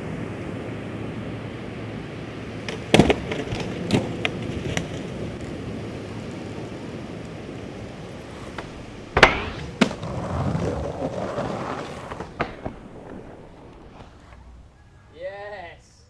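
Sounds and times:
skateboard wheels rolling on asphalt: 0.0s - 15.2s
skateboard scraping on rail: 2.5s - 15.0s
skateboard tail pop: 2.6s - 5.1s, 8.2s - 14.6s
skateboard clacking onto ground: 2.6s - 5.6s, 7.2s - 14.5s
skateboard clacking on metal rail: 8.4s - 10.2s.

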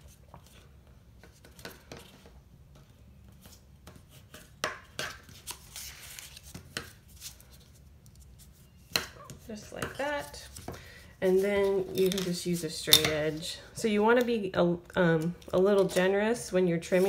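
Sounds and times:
paper being handled: 5.3s - 8.6s.

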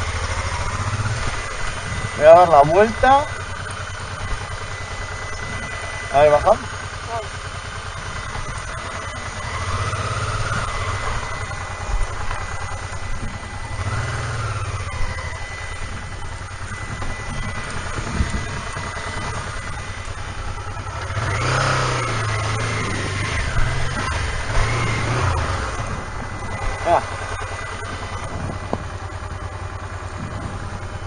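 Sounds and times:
motorcycle engine revving: 0.0s - 31.0s.

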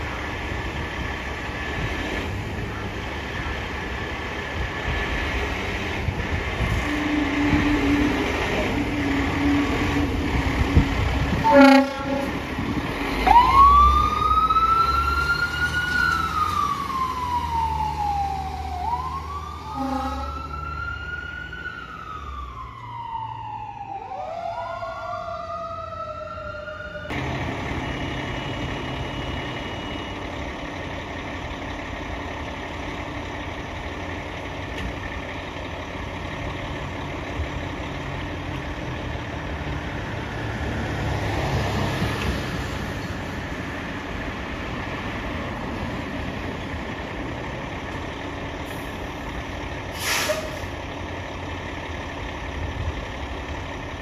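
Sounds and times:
engine running: 0.0s - 25.4s, 26.0s - 54.0s
siren wailing: 6.8s - 27.2s
fire engine air horn: 11.3s - 12.6s, 19.6s - 20.8s, 49.9s - 50.8s.

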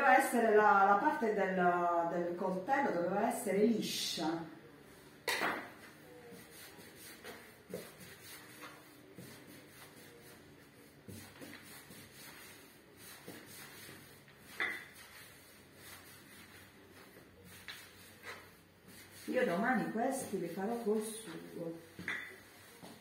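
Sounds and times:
dough rubbing under palms: 5.8s - 23.0s.

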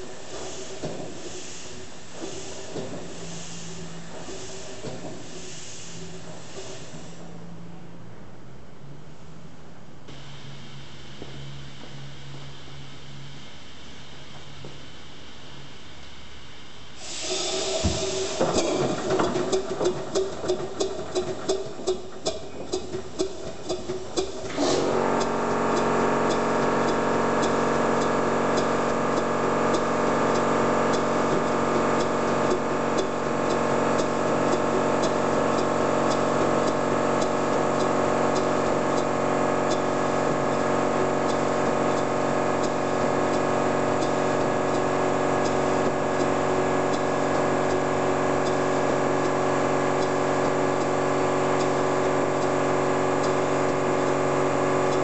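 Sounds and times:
steam engine running: 0.0s - 7.8s, 16.9s - 55.0s.

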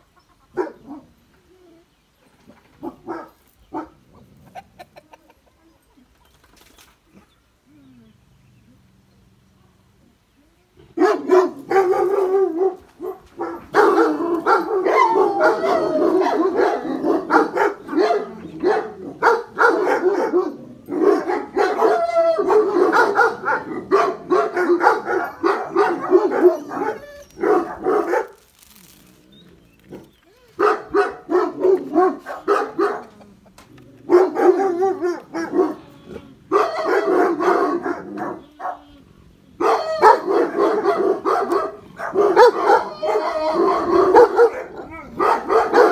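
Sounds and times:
dogs barking: 0.5s - 1.1s, 2.8s - 4.7s, 11.0s - 28.4s, 29.9s - 33.4s, 34.0s - 35.9s, 36.5s - 39.0s, 39.6s - 45.9s.

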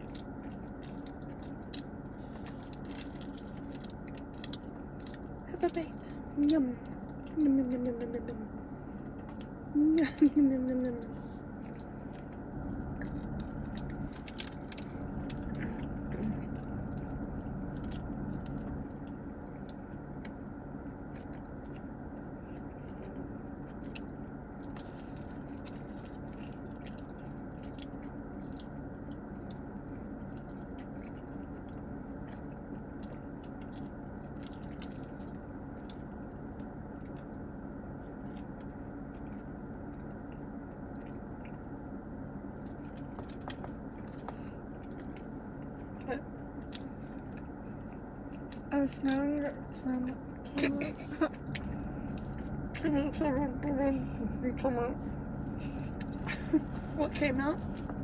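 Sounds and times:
chewing and biting soft food: 0.0s - 10.3s, 11.0s - 50.6s, 51.3s - 52.9s, 55.0s - 58.0s
steady low hum: 0.0s - 58.0s.

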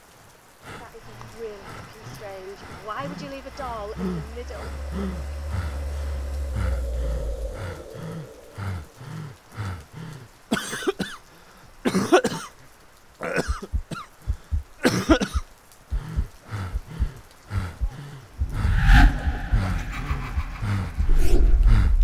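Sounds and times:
harsh raspy voice-like bursts: 0.6s - 9.3s, 13.2s - 18.3s.

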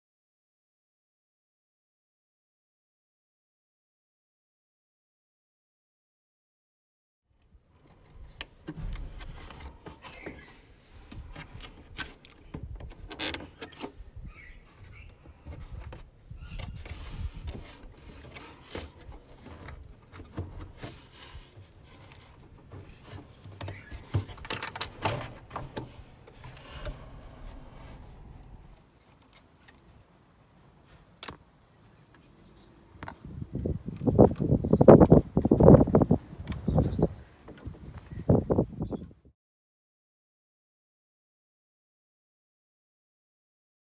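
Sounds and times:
low rumble: 26.7s - 28.8s.

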